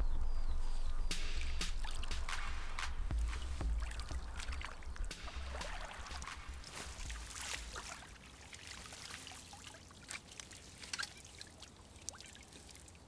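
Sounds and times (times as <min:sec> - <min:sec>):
water trickling and dripping: 0:01.3 - 0:13.0
small drops splashing: 0:03.3 - 0:12.9.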